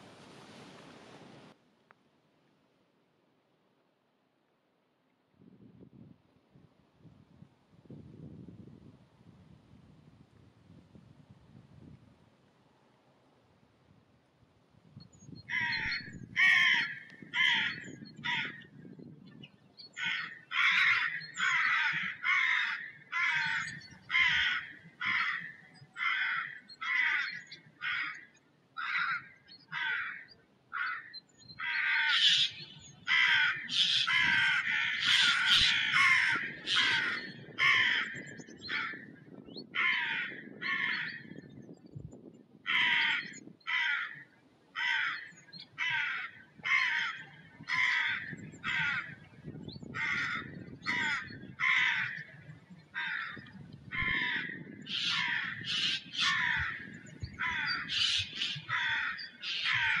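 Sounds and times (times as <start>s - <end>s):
flock of birds calling: 15.5s - 18.7s, 19.9s - 41.4s, 42.7s - 44.2s, 44.8s - 60.0s.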